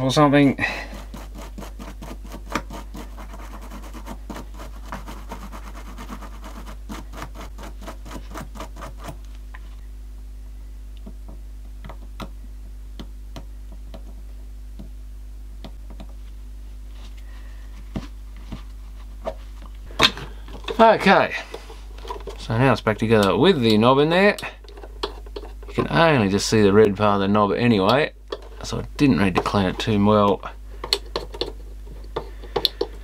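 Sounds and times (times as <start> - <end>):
low steady hum: 0.0 - 33.0
brush scrubbing plastic knob: 0.4 - 9.2, 20.6 - 26.4, 27.9 - 33.0.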